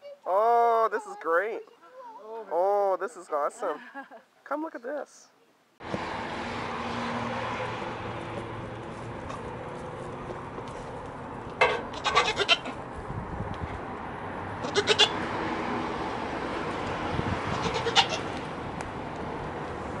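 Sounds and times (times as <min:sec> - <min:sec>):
goat kids bleating: 0:11.9 - 0:12.8, 0:14.6 - 0:15.3, 0:17.5 - 0:18.4.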